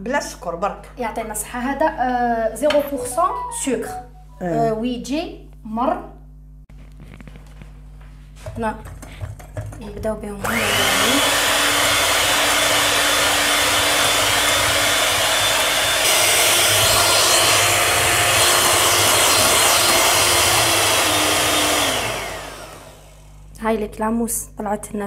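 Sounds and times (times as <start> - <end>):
electric hand mixer running: 10.4 - 23.5.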